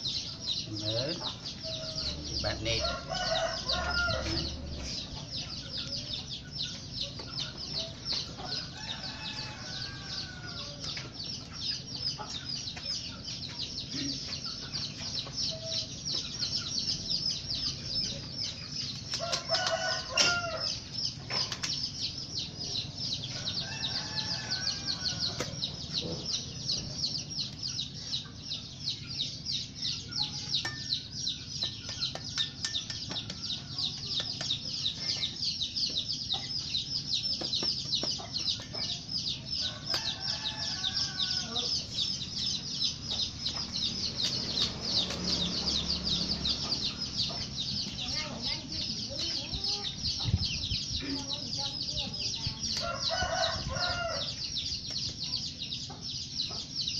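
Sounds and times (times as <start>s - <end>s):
roosters crowing: 0.0s - 12.2s, 16.9s - 21.6s, 22.6s - 27.9s, 36.7s - 49.9s, 52.3s - 54.7s
chickens clucking: 0.0s - 56.9s.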